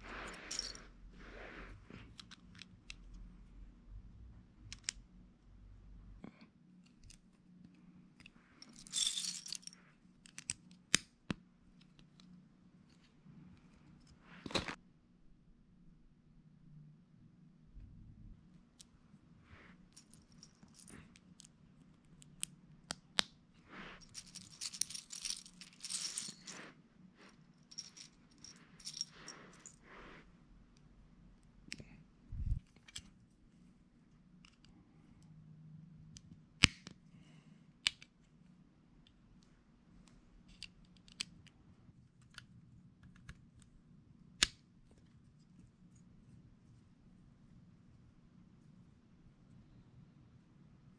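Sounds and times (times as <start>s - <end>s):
loose plastic pieces rattling: 24.0s - 26.6s.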